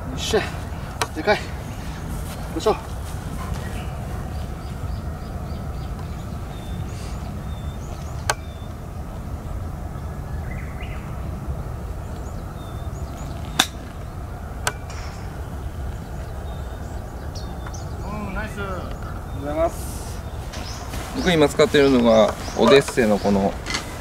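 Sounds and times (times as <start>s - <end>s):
steady low rumble: 0.0s - 24.0s
golf ball struck click: 13.5s - 13.9s.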